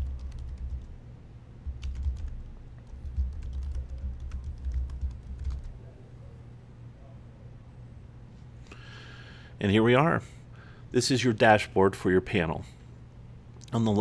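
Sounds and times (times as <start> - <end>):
keyboard typing: 0.0 - 1.0, 1.7 - 5.8
low steady hum: 0.0 - 14.0.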